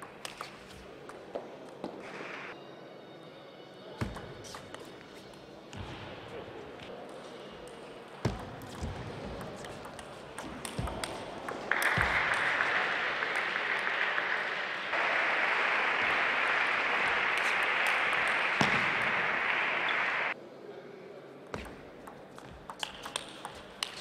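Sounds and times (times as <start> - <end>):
audience applause: 11.6 - 20.4.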